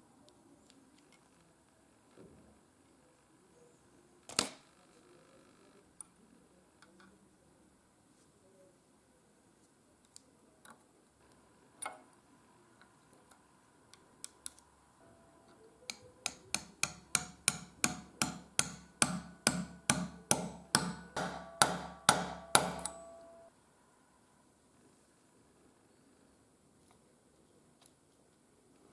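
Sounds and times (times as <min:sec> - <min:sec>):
hammer tapping metal punch: 0:15.9 - 0:23.5.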